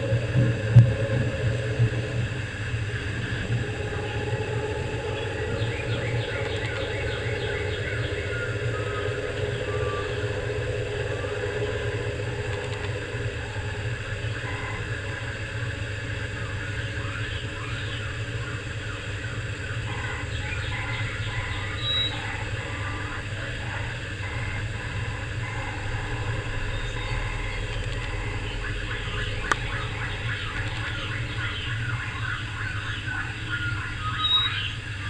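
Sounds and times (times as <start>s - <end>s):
steady low hum: 0.0s - 35.0s
faint high chirps: 16.2s - 34.9s.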